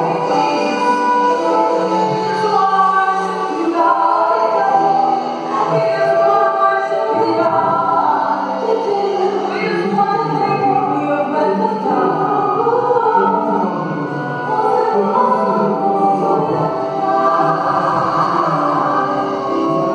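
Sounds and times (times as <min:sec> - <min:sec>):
band accompaniment: 0:00.0 - 0:10.8
gospel choir singing: 0:00.0 - 0:19.9.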